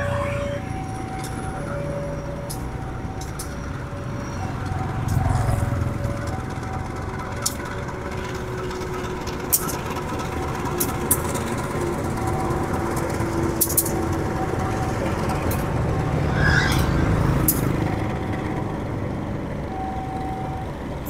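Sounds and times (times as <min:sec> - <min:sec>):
level crossing two-tone alarm: 0:00.0 - 0:08.2, 0:19.7 - 0:21.0
road traffic rumble: 0:00.0 - 0:21.0.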